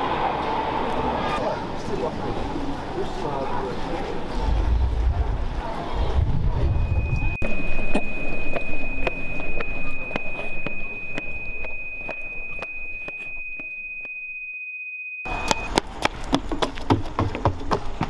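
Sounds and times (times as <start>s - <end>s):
high-pitched sine tone: 6.6s - 15.7s
running footsteps: 15.4s - 18.0s.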